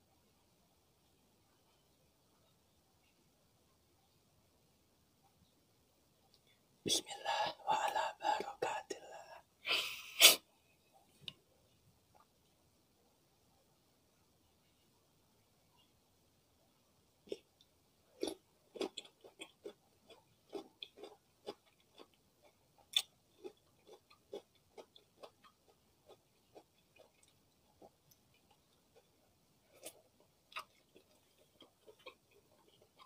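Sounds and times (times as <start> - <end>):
chewing crunches: 18.2 - 33.0.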